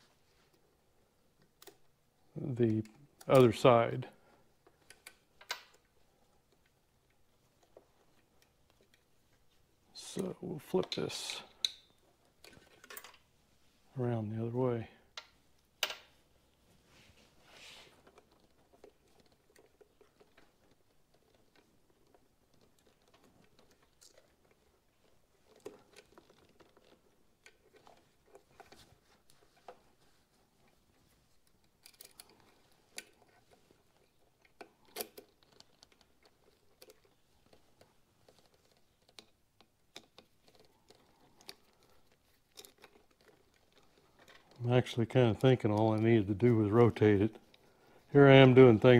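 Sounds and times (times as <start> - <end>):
small metal parts clicking: 31.6 - 44.6.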